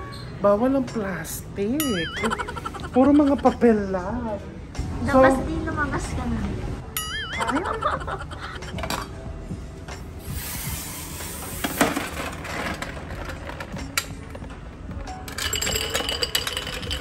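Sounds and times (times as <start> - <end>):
chocolates clinking against glass: 15.1 - 17.0
chocolates rattling: 15.2 - 17.0.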